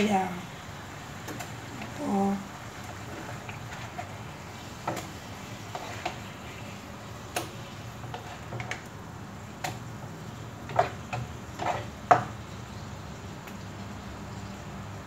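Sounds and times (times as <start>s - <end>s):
spatula tapping and scraping pan: 2.8s - 6.6s, 7.3s - 8.9s, 10.6s - 12.4s.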